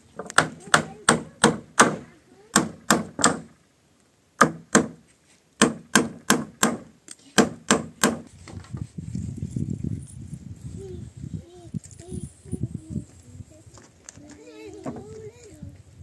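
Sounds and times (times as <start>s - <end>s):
hammer blows on wooden planks: 0.2s - 3.6s, 4.4s - 8.7s.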